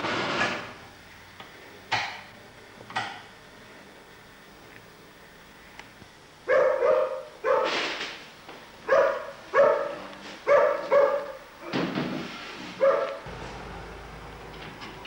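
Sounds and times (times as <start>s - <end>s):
dog barking: 6.5s - 7.8s, 8.9s - 11.4s, 12.8s - 13.3s.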